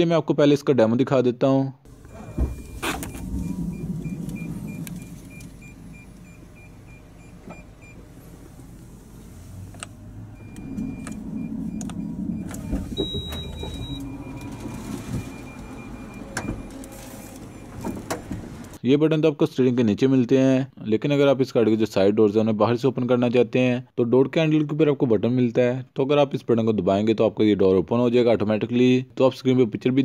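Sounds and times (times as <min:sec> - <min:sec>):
warning beeps: 0:01.9 - 0:08.7, 0:10.3 - 0:18.0
electric sliding door motor: 0:01.9 - 0:18.8.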